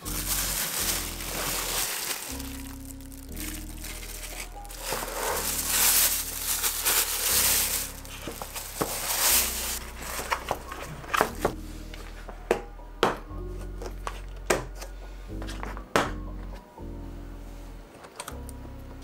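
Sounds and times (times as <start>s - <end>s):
plastic bag crinkling: 0.0s - 11.5s.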